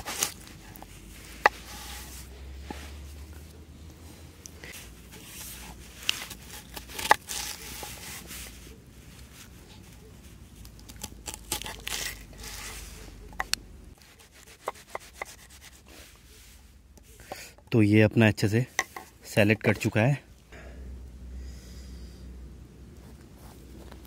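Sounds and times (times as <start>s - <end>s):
knife slicing onion: 5.3s - 8.5s, 10.9s - 16.0s.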